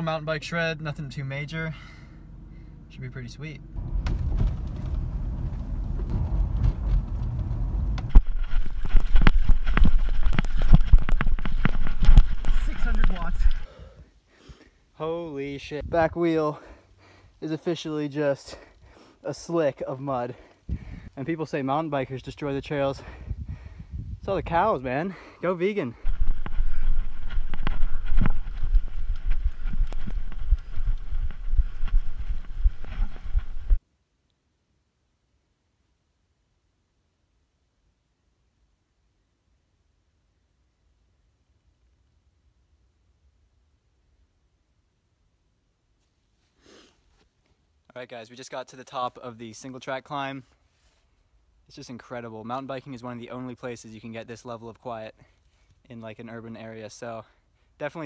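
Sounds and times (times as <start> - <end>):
car cabin road rumble: 2.2 - 13.6
mountain bike rattling on dirt trail: 3.8 - 13.6
wind rumbling on microphone: 3.8 - 13.7, 15.8 - 16.2, 20.7 - 21.2, 22.6 - 24.8, 26.0 - 33.8.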